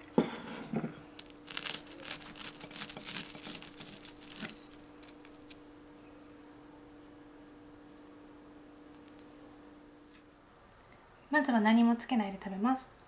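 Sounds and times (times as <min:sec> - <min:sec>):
crackling crunches of coating: 0:01.0 - 0:06.1, 0:08.2 - 0:10.9.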